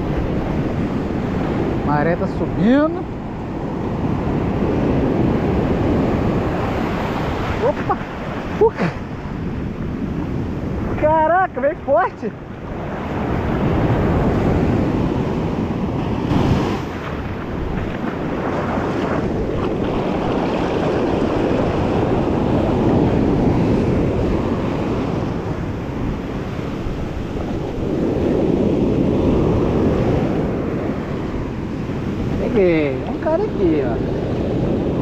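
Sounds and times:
surf washing up beach: 0.0 - 35.0
wind buffeting microphone: 0.0 - 35.0.

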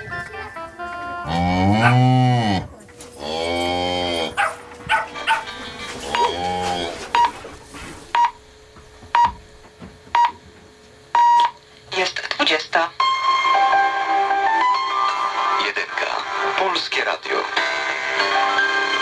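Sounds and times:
cow mooing: 1.2 - 7.6.

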